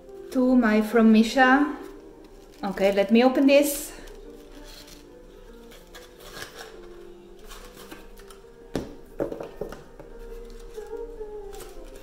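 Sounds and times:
soft background music: 0.0s - 12.0s
gift package rustling open: 1.7s - 8.6s, 9.5s - 12.0s.

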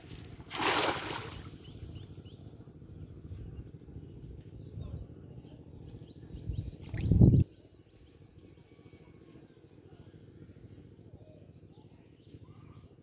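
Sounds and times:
net splashing on water: 0.0s - 1.6s
low steady rumble: 0.0s - 12.5s.

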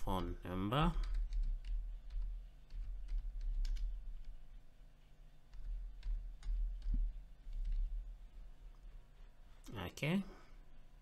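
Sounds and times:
keyboard typing: 0.0s - 4.6s, 5.5s - 8.2s.

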